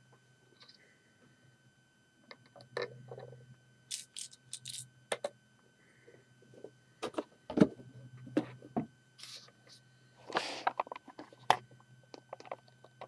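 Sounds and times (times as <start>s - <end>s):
faint low hum: 0.0s - 13.0s
plastic pieces clicking and rustling: 3.9s - 5.3s.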